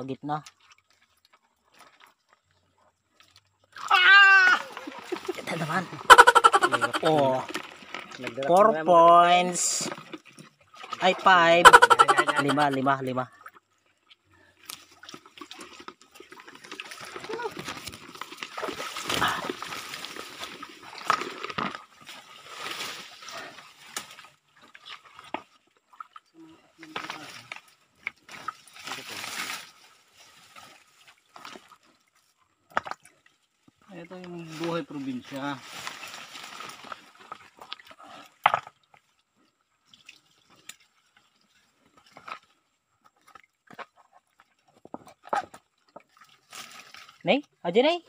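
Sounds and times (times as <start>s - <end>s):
shallow water trickling: 0.4s - 11.7s, 12.6s - 44.8s
rustling leafy plants: 0.8s - 10.2s, 14.4s - 25.6s, 26.5s - 32.4s, 33.9s - 37.6s
hands splashing in stream: 14.7s - 26.3s.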